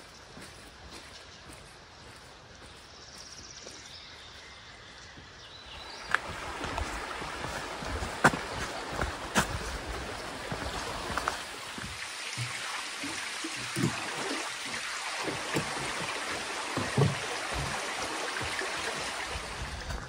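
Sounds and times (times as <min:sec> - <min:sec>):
creek running over rocks: 0:00.0 - 0:02.9, 0:05.5 - 0:20.0
soft low thumps: 0:15.2 - 0:20.0.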